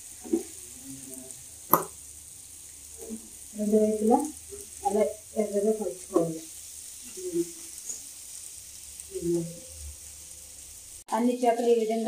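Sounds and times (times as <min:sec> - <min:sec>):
fish sizzling in oil: 0:00.0 - 0:12.0
woman speaking: 0:03.6 - 0:06.4, 0:09.1 - 0:09.6, 0:11.1 - 0:12.0.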